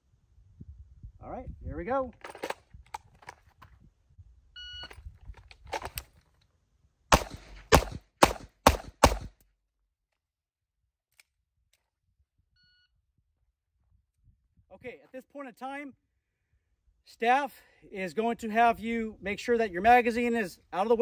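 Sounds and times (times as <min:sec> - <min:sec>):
pistol shots: 0:07.1 - 0:09.4.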